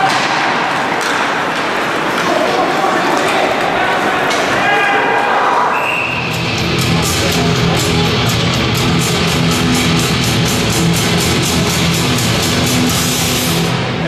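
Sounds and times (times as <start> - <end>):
loud rock music: 6.2 - 14.0.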